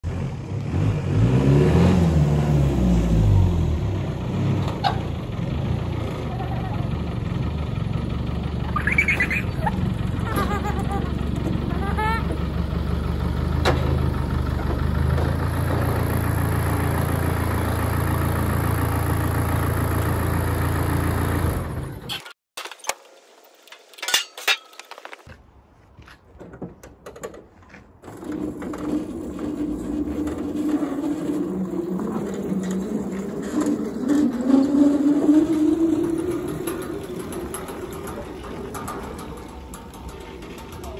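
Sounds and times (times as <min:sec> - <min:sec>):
vehicle engine idling: 0:03.1 - 0:22.1, 0:29.2 - 0:40.9.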